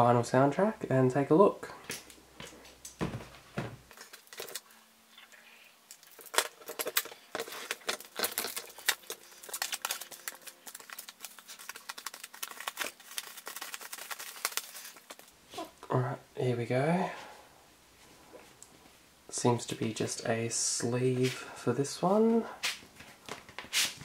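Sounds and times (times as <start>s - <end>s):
plastic shrink-wrap crinkling: 3.9s - 4.8s, 5.9s - 15.7s.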